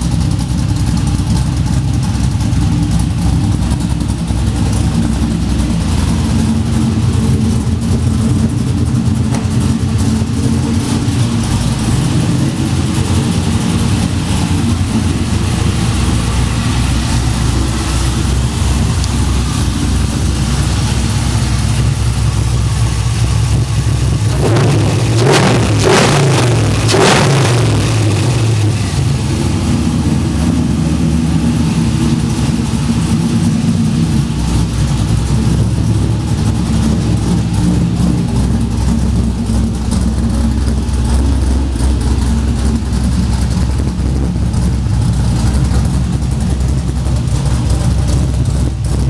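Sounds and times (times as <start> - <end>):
engine idling: 0.0 - 49.0
engine throttle blip: 3.4 - 30.6.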